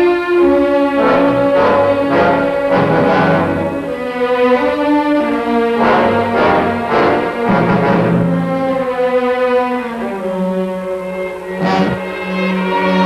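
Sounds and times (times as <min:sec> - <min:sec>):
dramatic orchestral music: 0:00.4 - 0:13.0
sharp orchestral hits: 0:01.0 - 0:04.1, 0:06.0 - 0:08.8.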